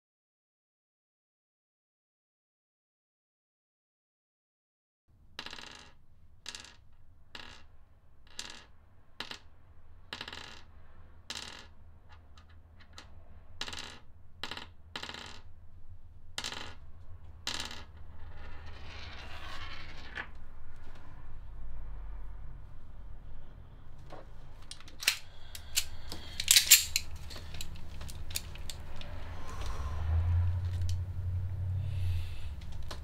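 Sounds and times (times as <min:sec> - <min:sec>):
low hum: 0:15.5 - 0:33.0
rustling scrape: 0:18.1 - 0:21.4
cartridges clicking on wooden table: 0:25.0 - 0:28.8.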